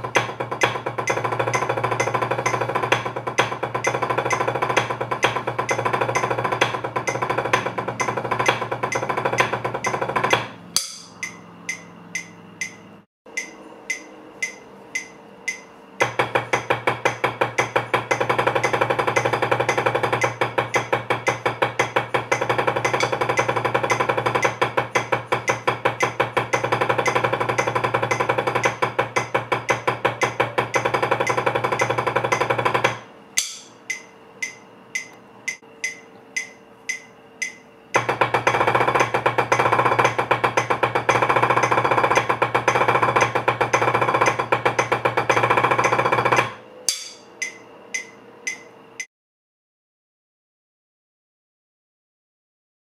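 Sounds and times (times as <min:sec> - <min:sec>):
steady ticking: 0:07.0 - 0:15.7
drumsticks on practice pad: 0:08.0 - 0:15.7, 0:33.4 - 0:37.7, 0:46.9 - 0:49.1.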